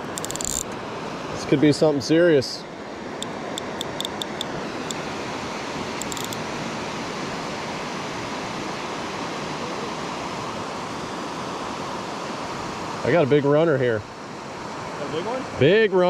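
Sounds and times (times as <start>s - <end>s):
fly reel clicking: 0.0s - 0.8s, 3.2s - 5.0s, 6.0s - 6.4s
river water rushing over riffles: 0.0s - 16.0s.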